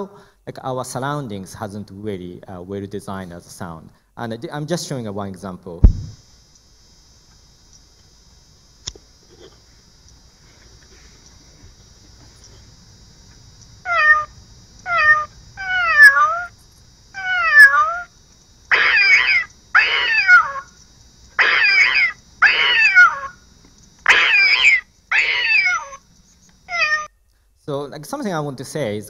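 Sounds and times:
recorded cat meows alarm: 13.8s - 18.1s, 18.7s - 20.8s, 21.4s - 23.4s, 24.0s - 26.0s, 26.7s - 27.1s.

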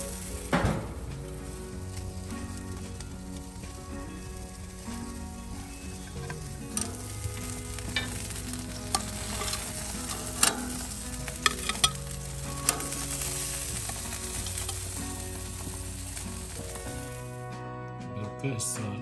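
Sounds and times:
patties sizzling on a grill: 0.0s - 17.5s
metal spatula scraping: 6.2s - 17.3s
spatula clinking on grate: 7.7s - 15.0s.

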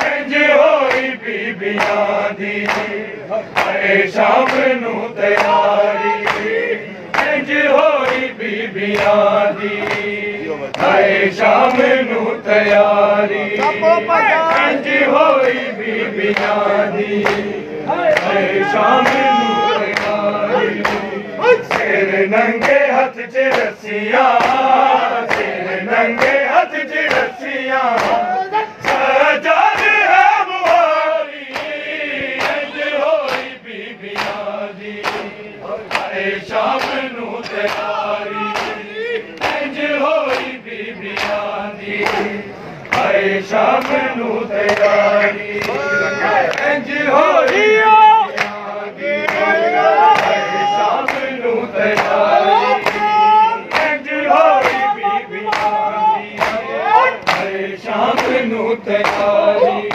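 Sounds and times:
men chanting together: 0.0s - 59.9s
hands slapping chests: 1.7s - 2.0s, 2.6s - 3.0s, 3.6s - 3.8s, 6.2s - 7.3s, 9.8s - 10.1s, 18.1s - 20.2s, 20.8s - 22.9s, 24.3s - 25.6s, 27.9s - 28.2s, 28.8s - 29.1s, 31.5s - 32.6s, 33.2s - 41.4s, 42.0s - 42.3s, 50.1s - 50.4s, 51.0s - 51.3s, 51.9s - 54.9s, 55.5s - 58.4s, 59.0s - 59.9s.

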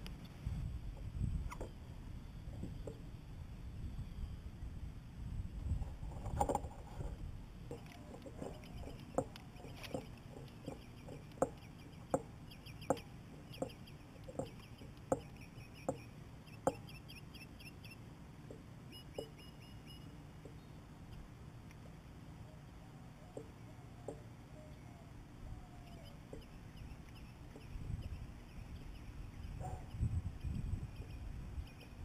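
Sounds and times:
bird clucking: 7.7s - 17.8s, 22.5s - 32.0s
high bird chirps: 18.8s - 21.2s.

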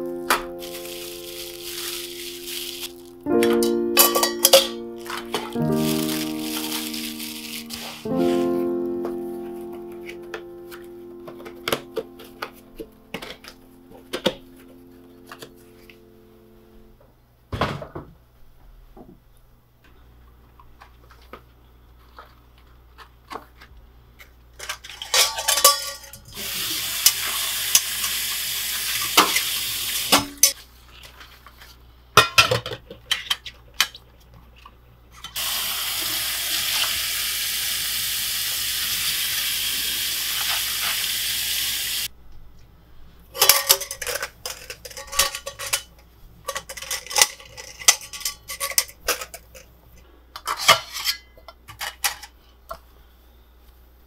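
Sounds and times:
metal pots clinking: 0.0s - 8.2s, 24.6s - 28.2s, 43.4s - 49.7s.

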